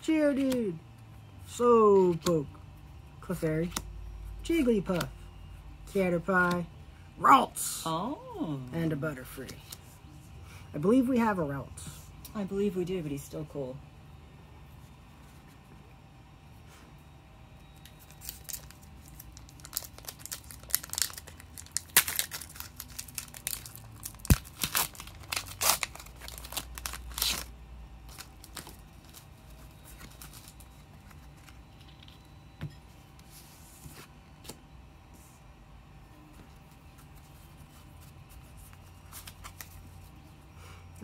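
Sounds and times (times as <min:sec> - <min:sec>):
foil wrapper crinkling and tearing: 0:17.8 - 0:31.6.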